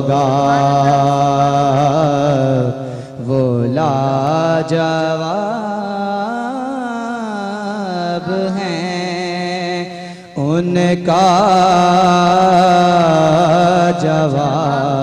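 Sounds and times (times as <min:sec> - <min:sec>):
man singing into a microphone: 0:00.0 - 0:15.0
singer breathing: 0:02.7 - 0:03.3, 0:09.9 - 0:10.4.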